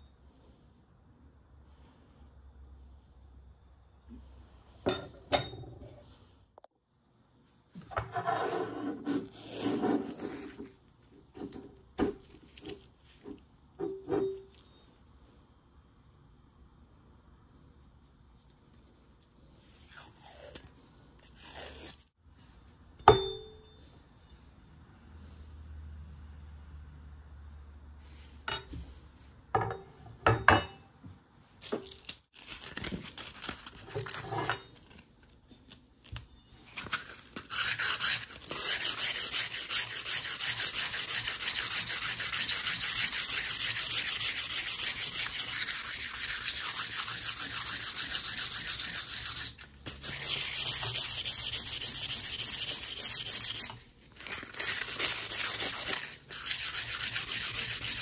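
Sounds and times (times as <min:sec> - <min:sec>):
sandpaper scrubbing steel blade: 0:37.5 - 0:53.8, 0:54.6 - 0:58.0.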